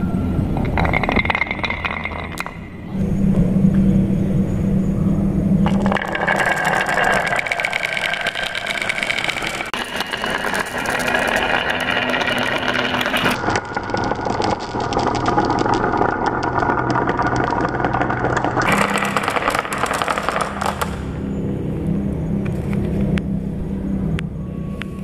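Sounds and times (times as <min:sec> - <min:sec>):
marbles clicking on wooden tracks: 0:00.5 - 0:02.8, 0:05.6 - 0:21.2.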